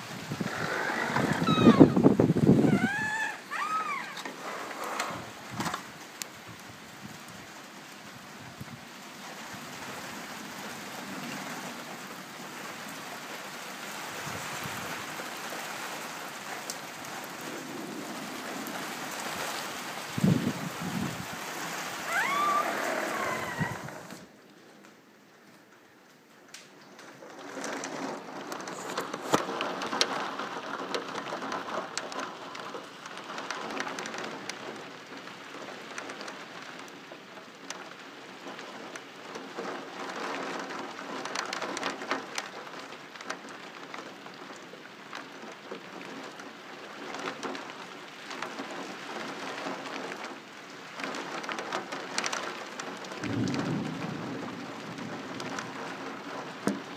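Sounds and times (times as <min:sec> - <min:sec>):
heavy rain pouring: 0:00.0 - 0:56.9
low thunder rumble: 0:53.2 - 0:56.9.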